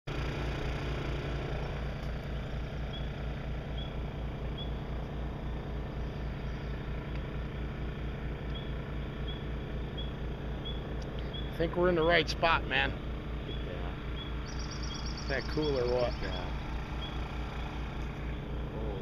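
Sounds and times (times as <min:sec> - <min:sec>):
small engine throbbing: 0:00.1 - 0:19.0
faint high chirps: 0:02.2 - 0:05.0, 0:08.4 - 0:11.6, 0:13.5 - 0:18.6.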